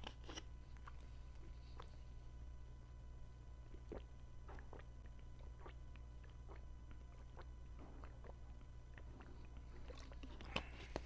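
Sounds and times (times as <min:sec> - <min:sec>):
steady low hum: 0:00.0 - 0:11.0
person gulping water: 0:03.7 - 0:10.8.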